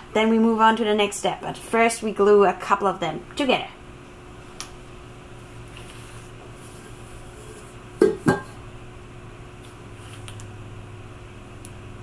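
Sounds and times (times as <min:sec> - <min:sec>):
low room hum: 0:00.0 - 0:12.0
metal pot knocking on countertop: 0:08.0 - 0:08.6.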